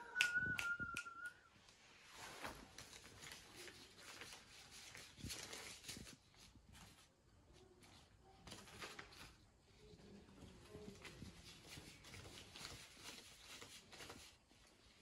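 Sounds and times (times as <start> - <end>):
whistled note: 0.0 - 1.5
finger snaps: 0.2 - 1.4
rustling of paper banknotes: 2.1 - 15.0.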